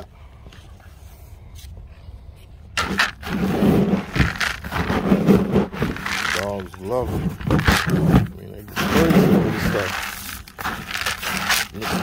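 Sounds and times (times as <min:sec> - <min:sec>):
kibble rattling in a bowl: 0:04.0 - 0:05.1, 0:05.7 - 0:08.2, 0:09.5 - 0:12.0.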